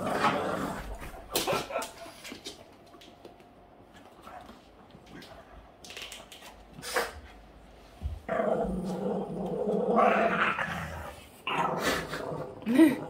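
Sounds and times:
dog play-growling: 0.0s - 2.5s, 8.0s - 13.0s.

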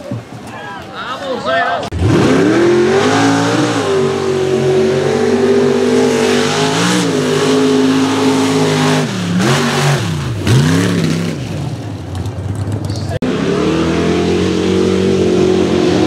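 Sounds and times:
truck engine at full throttle: 1.9s - 16.0s.

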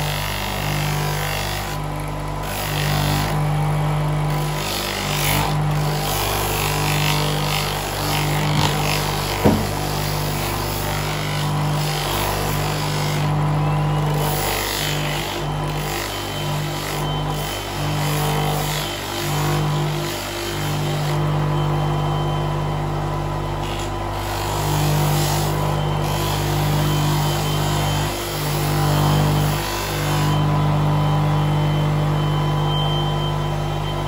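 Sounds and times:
polishing motor humming: 0.0s - 34.0s
metal scraping on polishing wheel: 4.3s - 21.2s, 23.6s - 30.6s
sharp knock: 9.4s - 9.8s.

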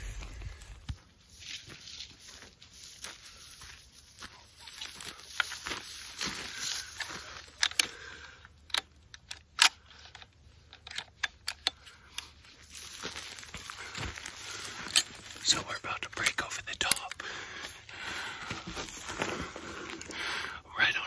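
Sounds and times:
rifle clicks and rattles: 5.3s - 17.9s
clothing and gear rustling: 12.2s - 15.6s, 17.6s - 20.4s.

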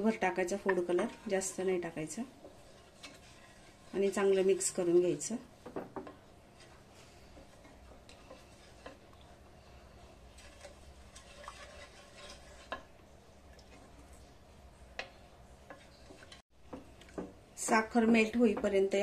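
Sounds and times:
wooden spatula scraping pan: 0.0s - 13.0s, 13.7s - 16.9s.

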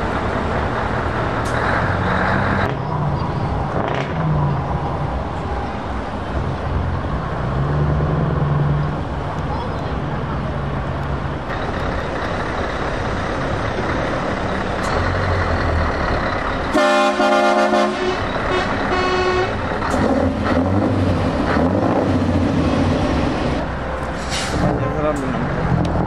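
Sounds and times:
truck diesel engines: 0.0s - 26.0s
truck horn blast: 16.7s - 19.7s.

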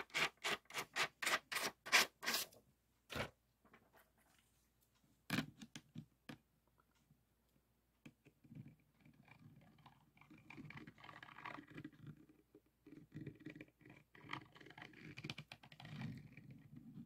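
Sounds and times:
small clicks and scratches on resin: 8.0s - 17.0s.

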